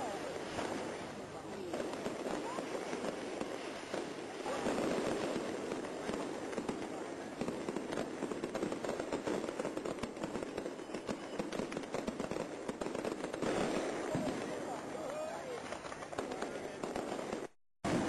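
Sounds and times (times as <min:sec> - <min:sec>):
crowd chatter: 0:00.0 - 0:08.2, 0:13.6 - 0:18.0
firecrackers cracking: 0:00.0 - 0:18.0.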